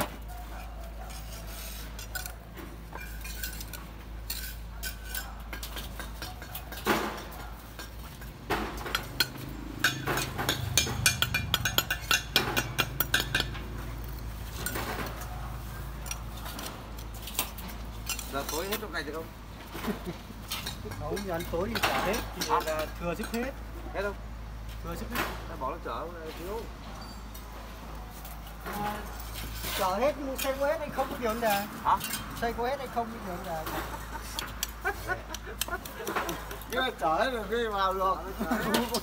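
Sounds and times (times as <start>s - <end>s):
trowel scraping mortar: 0.9s - 6.8s, 29.1s - 32.5s
trowel clinking against bricks: 1.0s - 15.4s, 20.4s - 23.5s, 29.2s - 32.6s, 38.4s - 39.0s.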